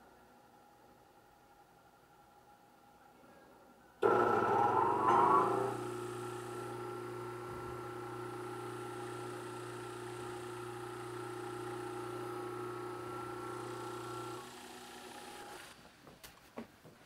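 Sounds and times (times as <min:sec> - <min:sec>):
disc sander motor humming: 0:04.0 - 0:15.8.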